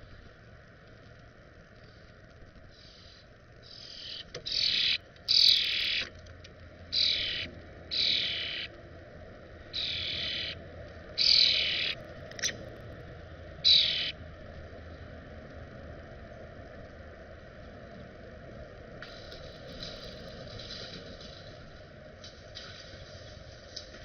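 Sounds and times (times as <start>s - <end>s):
starlings giving harsh raspy calls: 2.8s - 6.1s, 6.9s - 8.7s, 9.7s - 10.6s, 11.2s - 12.6s, 13.6s - 14.2s.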